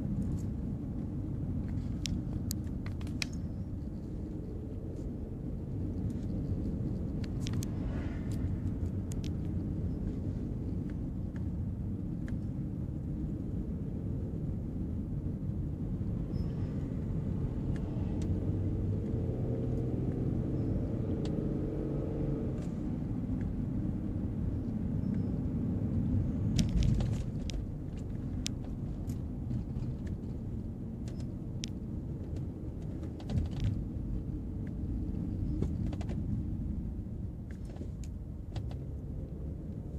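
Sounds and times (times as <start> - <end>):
car engine and tyres rumbling: 0.0 - 39.9
light clicks and rattles: 26.5 - 33.8.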